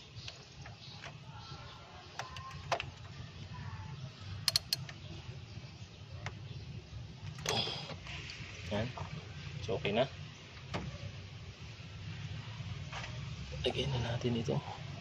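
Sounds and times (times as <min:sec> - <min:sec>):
socket wrench metallic clicks: 0:04.4 - 0:05.0.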